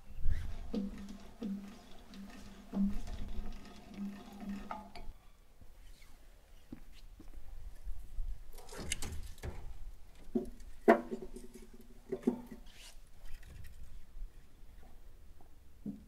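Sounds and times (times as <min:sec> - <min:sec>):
logs scraping rustle: 0:00.2 - 0:05.2, 0:08.6 - 0:14.1
hollow wooden knocks: 0:00.7 - 0:05.1, 0:08.8 - 0:11.5.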